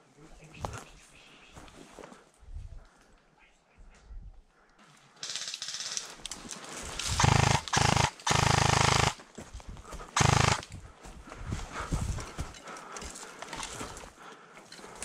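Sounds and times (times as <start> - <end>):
airsoft rifle firing bursts: 7.0 - 9.2, 10.1 - 10.7.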